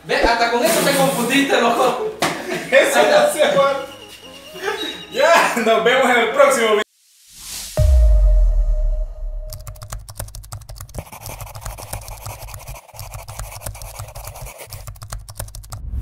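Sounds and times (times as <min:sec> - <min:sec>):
deep boom: 0:07.8 - 0:09.6
rapid crackling clicks: 0:09.6 - 0:15.8.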